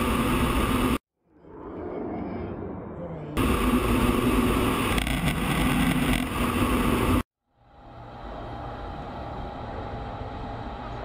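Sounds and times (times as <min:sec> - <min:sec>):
distant jet engine roar: 0:00.0 - 0:07.2
jet engine rush in cockpit: 0:00.0 - 0:11.0
low hum: 0:00.0 - 0:11.0.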